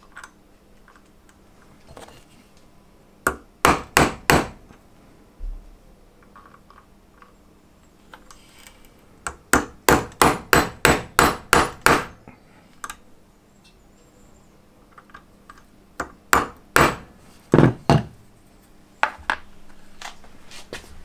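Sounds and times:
hammer tapping steel punch: 0:03.3 - 0:04.6, 0:09.2 - 0:12.2, 0:16.0 - 0:18.1.

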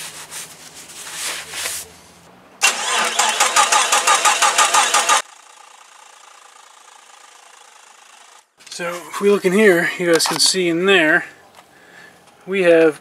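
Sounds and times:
paper towel rubbing: 0:00.0 - 0:02.1
engine cranking without firing: 0:02.6 - 0:08.4.

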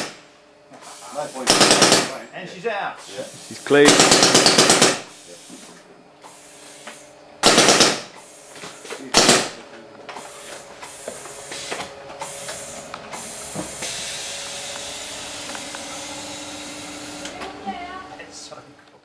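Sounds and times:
steady hiss: 0:00.7 - 0:01.5, 0:02.9 - 0:04.0, 0:05.1 - 0:07.1
paintball markers firing bursts: 0:01.4 - 0:02.1, 0:03.8 - 0:05.1, 0:07.4 - 0:08.1.

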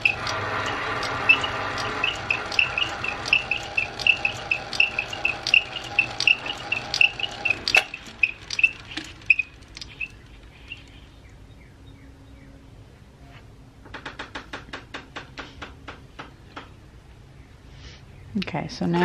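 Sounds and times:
lathe motor hum: 0:00.0 - 0:11.0
chuck ticking: 0:00.0 - 0:11.1.

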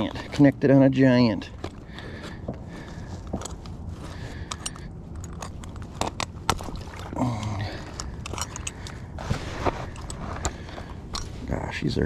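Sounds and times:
metal trap clicking and scraping: 0:04.4 - 0:06.7, 0:07.8 - 0:09.1, 0:09.8 - 0:11.4.

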